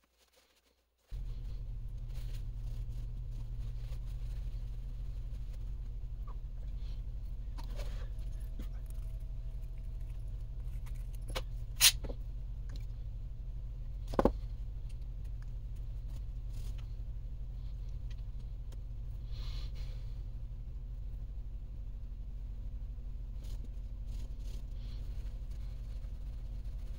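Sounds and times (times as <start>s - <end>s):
steady low hum: 1.1s - 26.9s.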